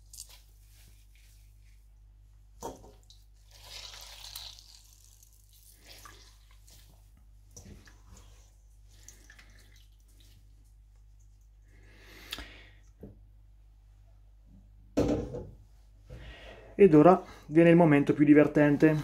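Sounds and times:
small wet splashes: 3.0 - 7.0, 7.6 - 10.5.

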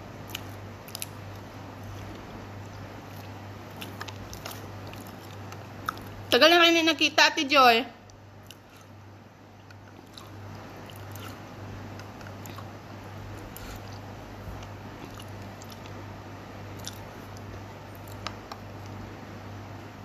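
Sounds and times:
steady low hum: 0.0 - 20.0
person chewing: 0.2 - 6.3, 8.3 - 9.0, 9.6 - 16.0, 16.6 - 19.0.

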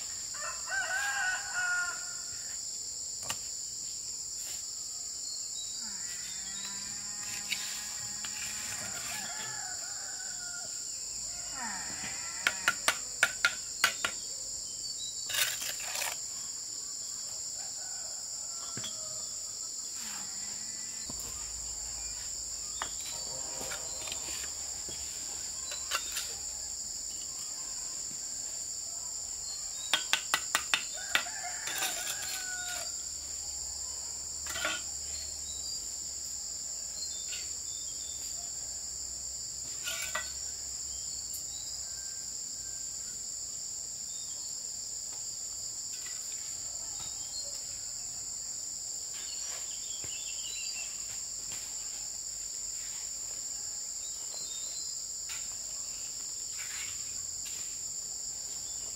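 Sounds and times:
insects droning: 0.0 - 58.9
rooster crowing: 0.3 - 2.5, 8.2 - 12.8, 30.9 - 33.0.

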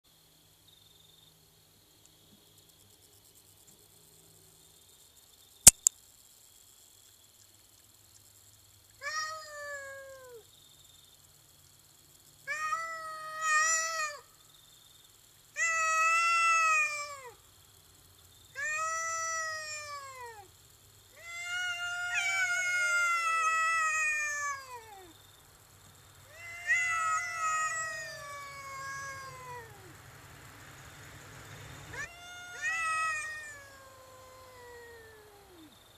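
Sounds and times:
cat yowling: 9.0 - 10.4, 12.5 - 14.3, 15.6 - 17.4, 18.5 - 20.5, 21.1 - 25.1, 26.2 - 29.9, 31.9 - 35.7.

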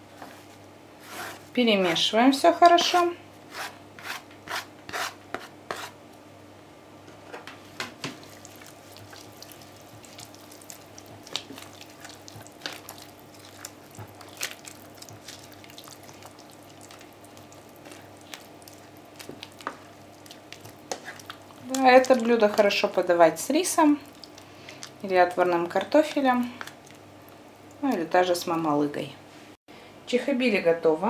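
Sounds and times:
faint steady hum: 0.0 - 31.0
spatula scraping a cooker bowl: 1.0 - 1.5, 2.8 - 6.0, 19.6 - 21.5.

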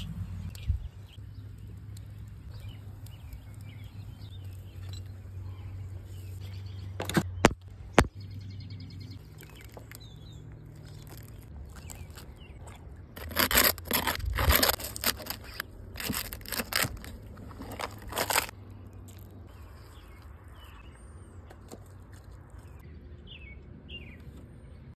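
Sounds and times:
faint birds chirping: 0.0 - 25.0
knife crunching through crackling skin: 10.7 - 18.5.

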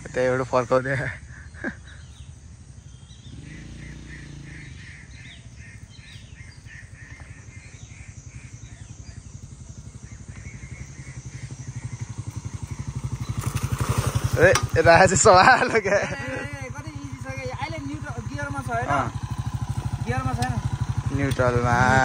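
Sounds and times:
birds chirping: 0.0 - 22.0
motorcycle engine running: 0.0 - 22.0.

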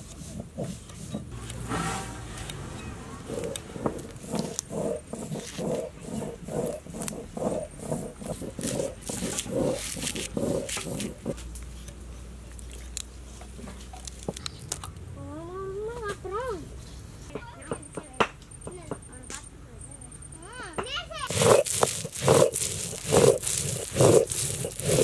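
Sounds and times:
rhythmic crunching of food: 3.2 - 15.0, 21.2 - 25.0.

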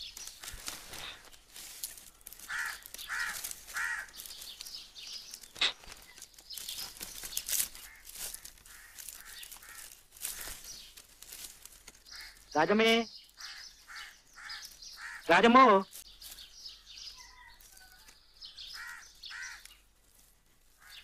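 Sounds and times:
scattered clicks and crackles: 0.0 - 12.5
crow cawing: 2.3 - 4.3, 7.7 - 10.7, 12.0 - 12.6, 13.4 - 15.5, 18.6 - 19.8, 20.8 - 21.0.

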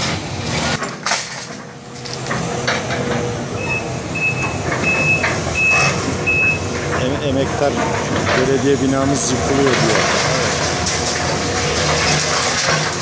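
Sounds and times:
excavator engine under load: 0.0 - 13.0
concrete rubble clattering: 0.7 - 3.0, 6.9 - 13.0
high warning alarm beeping: 3.6 - 6.7.

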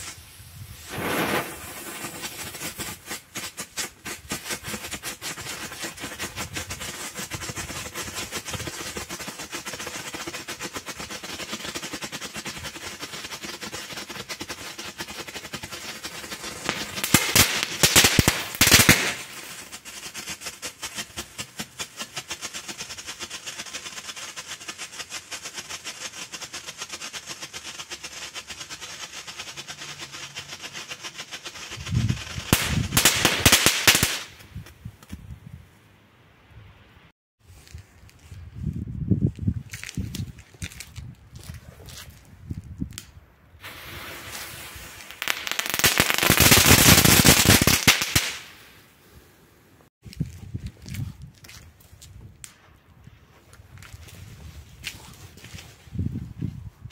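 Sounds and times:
fireworks crackling: 0.0 - 35.2, 39.7 - 49.3.

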